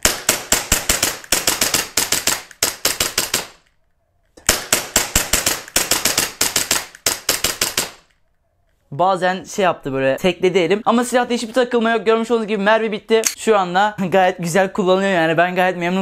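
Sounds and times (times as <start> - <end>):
airsoft pistol rapid cracks: 0.0 - 3.8, 4.4 - 8.2.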